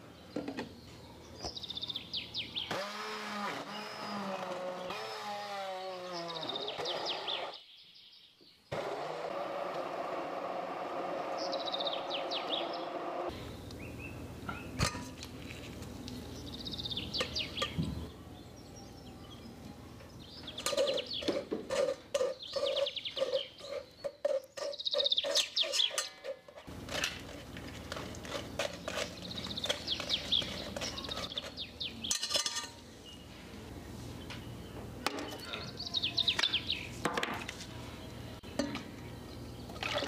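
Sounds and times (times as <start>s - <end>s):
metal spoon scraping sieve: 20.6s - 32.8s.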